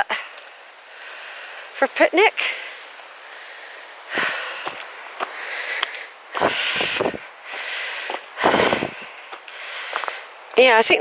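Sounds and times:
faint steady hiss: 0.0 - 11.0
person breathing hard: 0.1 - 1.8, 2.4 - 10.4.

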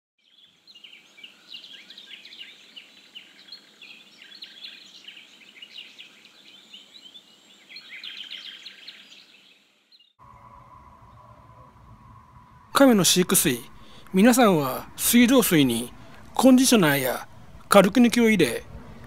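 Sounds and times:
small birds chirping: 0.2 - 10.2.

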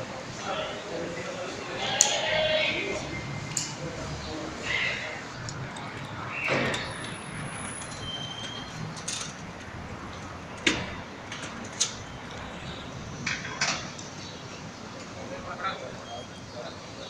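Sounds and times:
background noise: 0.0 - 17.0.

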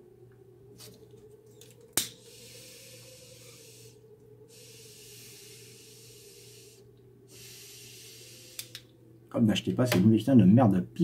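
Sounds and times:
lighter click: 1.9 - 2.2, 8.5 - 8.9
pipe drawing hiss: 1.9 - 8.9.

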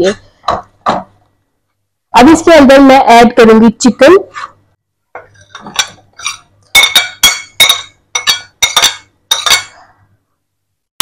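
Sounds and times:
spoon clinking against dish: 5.2 - 9.8.

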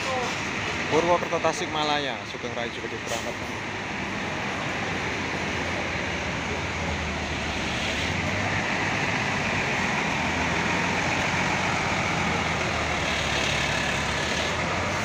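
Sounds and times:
bus diesel engine humming: 0.0 - 15.0
tyres on wet pavement: 0.0 - 15.0.

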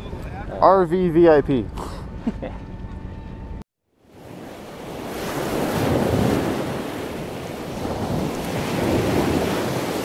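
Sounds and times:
ocean waves rushing in: 4.0 - 10.0.

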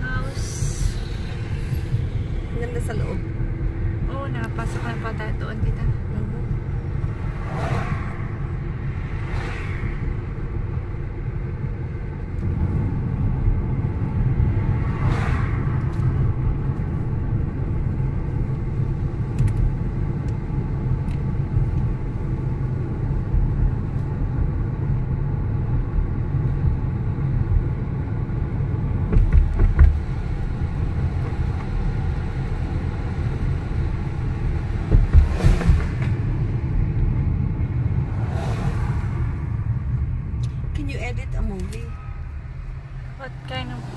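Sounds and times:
car engine and tyre rumble: 0.0 - 43.9
heavy low thumps: 34.5 - 38.4.

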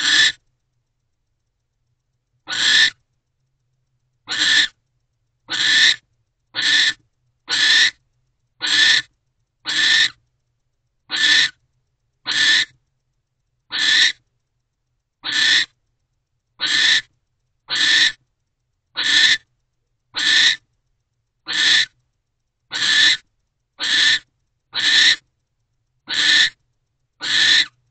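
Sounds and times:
owl rasping hiss calls: 0.0 - 0.4, 2.4 - 3.0, 4.2 - 4.8, 5.5 - 8.0, 8.6 - 10.2, 11.1 - 11.6, 12.2 - 12.8, 13.7 - 14.2, 15.2 - 15.8, 16.6 - 17.1, 17.7 - 18.2, 18.9 - 19.5, 20.1 - 20.7, 21.4 - 22.0, 22.7 - 25.3, 26.0 - 26.6, 27.2 - 27.8.

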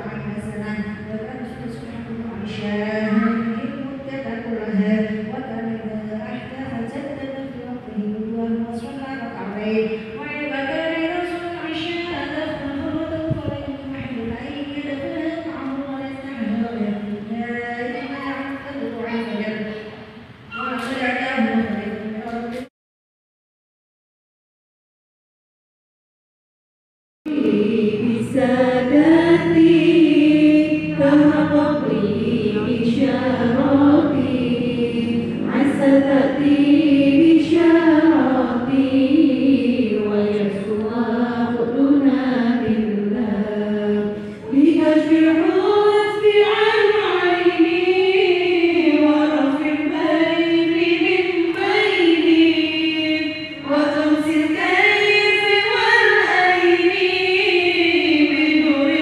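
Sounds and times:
women chanting in unison: 27.3 - 59.0.

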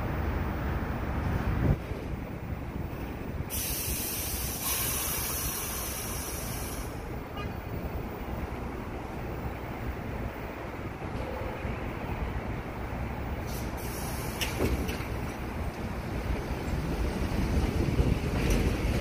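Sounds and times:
subway train equipment running: 0.0 - 19.0
hiss of released air: 3.5 - 7.0, 13.4 - 14.8.

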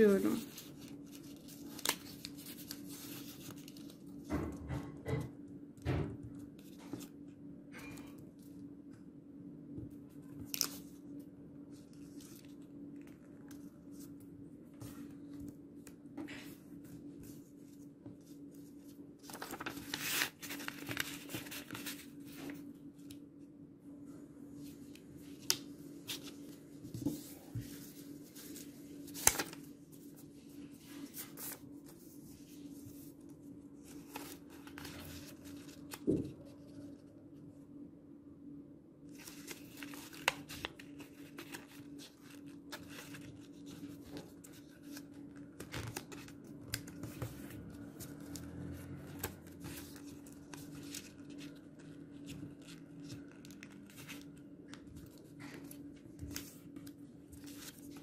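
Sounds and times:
paper rustling and crinkling: 0.0 - 5.2, 6.3 - 8.5, 10.1 - 23.2, 24.6 - 37.1, 39.1 - 58.0
paper fold clicks: 19.2 - 23.2, 28.4 - 29.7.

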